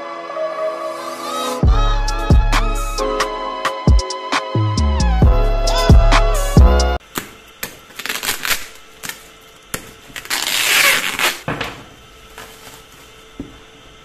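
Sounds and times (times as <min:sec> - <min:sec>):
plastic wrap rustling: 0:07.5 - 0:13.4
bubble wrap crinkling: 0:07.8 - 0:11.5, 0:12.3 - 0:13.2.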